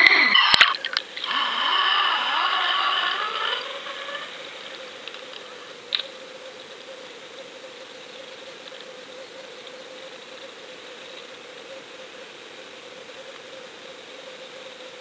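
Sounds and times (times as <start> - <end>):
underwater hiss: 0.0 - 5.7
constant hum: 0.0 - 15.0.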